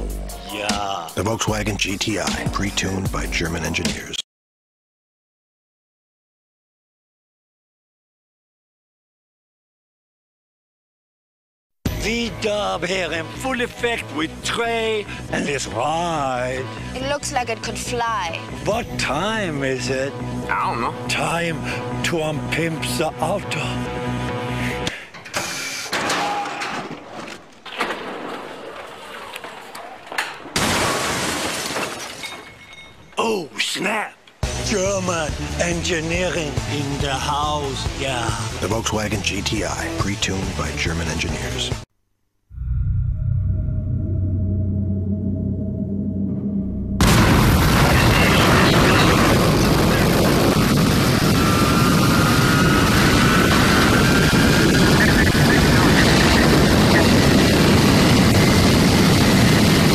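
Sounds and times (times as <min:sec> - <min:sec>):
deep rushing rumble: 0:42.6 - 0:59.9
rushing noise: 0:42.6 - 0:59.9
jet engine roar: 0:44.6 - 0:59.9.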